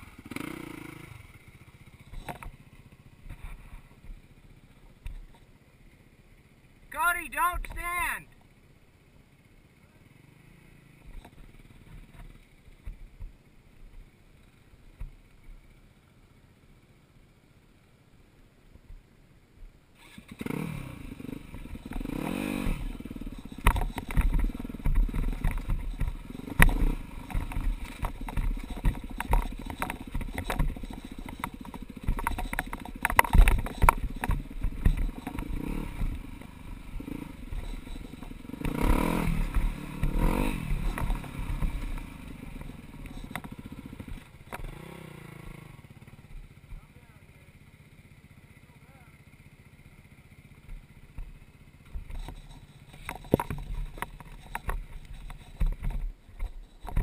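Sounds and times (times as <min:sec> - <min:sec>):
dirt bike engine revving: 0:00.0 - 0:03.9, 0:20.0 - 0:57.0
bike clattering over rocks: 0:23.1 - 0:36.2, 0:37.0 - 0:44.7, 0:51.9 - 0:57.0.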